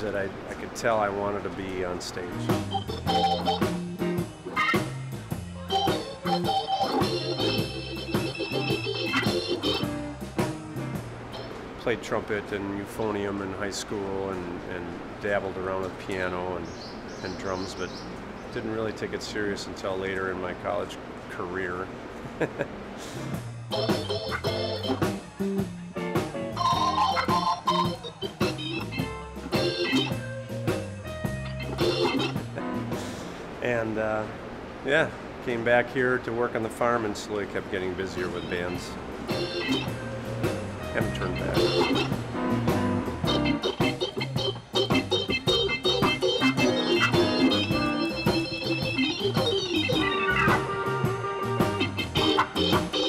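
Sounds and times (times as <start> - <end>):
electric organ playing chords: 1.9 - 11.9, 22.5 - 33.4, 37.8 - 53.0
drum beat: 2.4 - 11.5, 22.6 - 33.2, 38.2 - 53.0
moving bass line: 2.4 - 11.5, 23.2 - 33.2, 38.2 - 53.0
percussive hits: 8.2 - 11.2.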